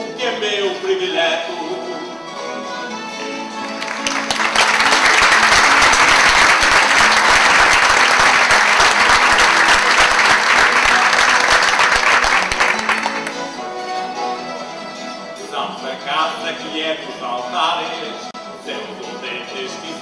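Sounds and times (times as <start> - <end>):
faint string instruments: 0.0 - 20.0
audience applauding: 3.6 - 13.5.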